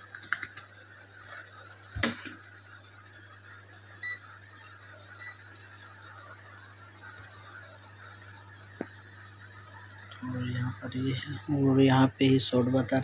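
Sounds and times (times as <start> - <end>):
steady low hum: 0.0 - 13.0
multimeter beep: 4.0 - 4.2, 5.2 - 5.4.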